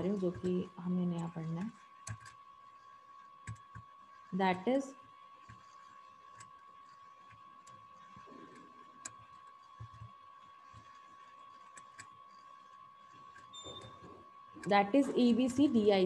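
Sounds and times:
computer mouse clicking: 1.2 - 2.4, 3.4 - 3.9, 5.5 - 10.1, 10.7 - 14.0.

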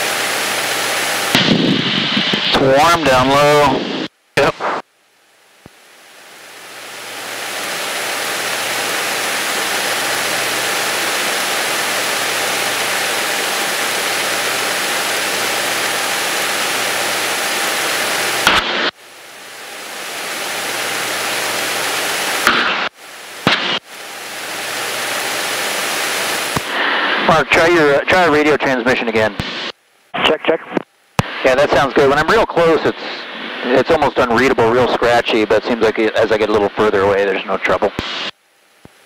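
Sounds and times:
radio static hiss: 0.0 - 39.0
sharp radio clicks: 29.4 - 31.4.

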